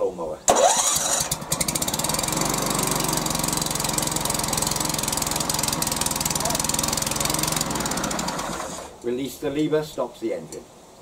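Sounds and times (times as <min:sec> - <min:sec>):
lawnmower engine running: 0:00.5 - 0:09.0.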